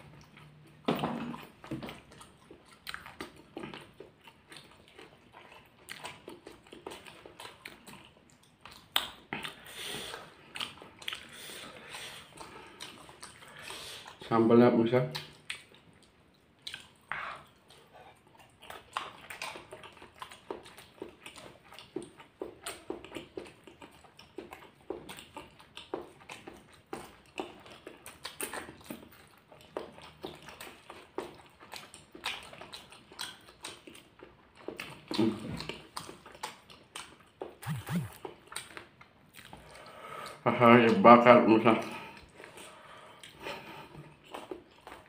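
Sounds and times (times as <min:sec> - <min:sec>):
chewing and crunching: 0:00.0 - 0:45.0
wet mouth clicks: 0:15.1 - 0:17.8, 0:35.0 - 0:40.4
person humming: 0:37.6 - 0:38.2.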